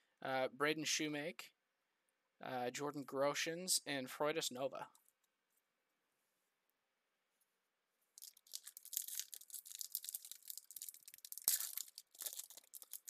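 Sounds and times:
wrapper crinkling and ripping: 8.2 - 13.0.

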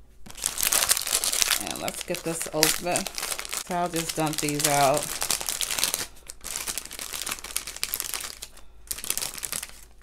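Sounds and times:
plastic bag crinkling: 0.2 - 10.0.

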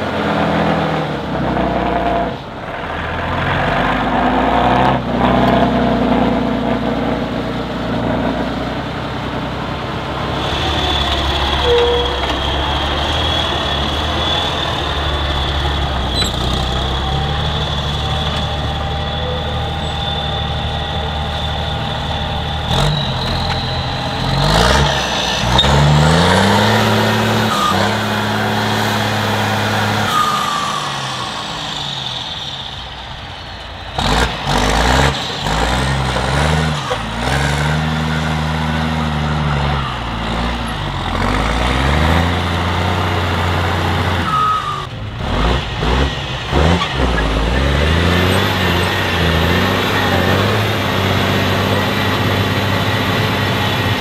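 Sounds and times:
diesel engine revving: 0.0 - 54.0
high whistle: 10.4 - 28.1, 29.9 - 33.6, 44.2 - 44.9.

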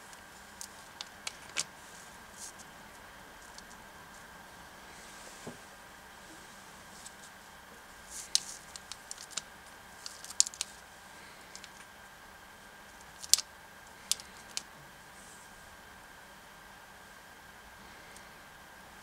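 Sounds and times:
plastic chopsticks clicking: 8.3 - 9.4, 10.0 - 10.7, 11.5 - 11.8, 13.1 - 13.4, 14.1 - 14.6.

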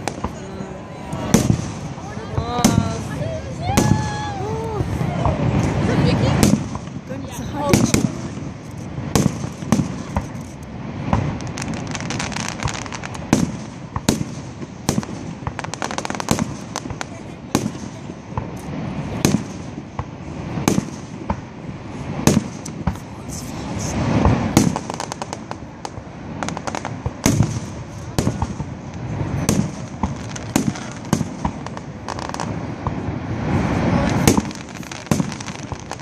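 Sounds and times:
fireworks booming bursts: 0.0 - 36.0
fireworks sharp cracks: 0.0 - 36.0.

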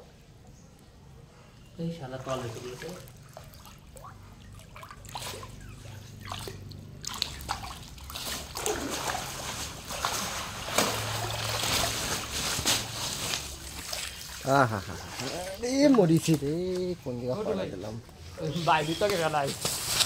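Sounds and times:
water splashing and sloshing: 1.9 - 20.0
water dripping off net: 6.2 - 14.5.

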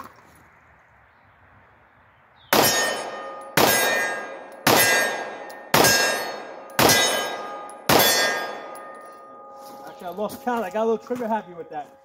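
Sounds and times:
pistol shots with ringing tail: 2.5 - 10.6.

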